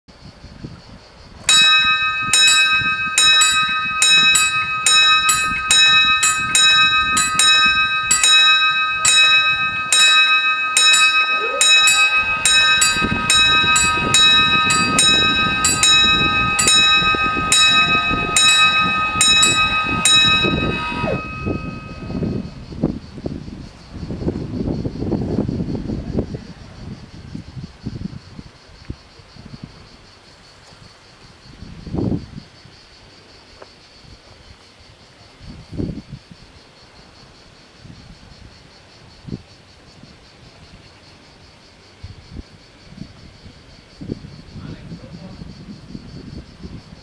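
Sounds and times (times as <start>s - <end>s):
level crossing bells ringing: 1.5s - 22.6s.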